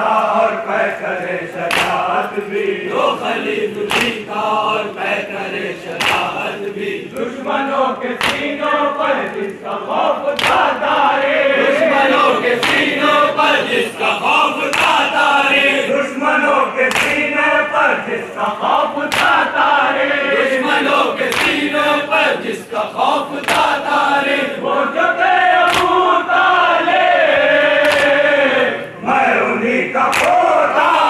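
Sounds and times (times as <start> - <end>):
men chanting in unison: 0.0 - 31.0
chest-beating slaps: 1.7 - 2.2, 3.8 - 4.2, 6.0 - 6.4, 8.2 - 8.6, 10.4 - 10.7, 12.6 - 13.0, 14.7 - 15.0, 16.9 - 17.2, 19.1 - 19.4, 21.3 - 21.6, 25.7 - 26.0, 27.8 - 28.2, 30.1 - 30.4.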